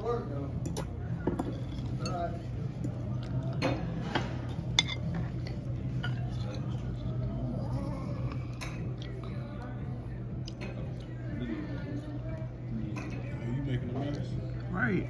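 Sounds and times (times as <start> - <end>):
faint voices: 0.0 - 15.0
fork clinking on plate: 4.7 - 5.2.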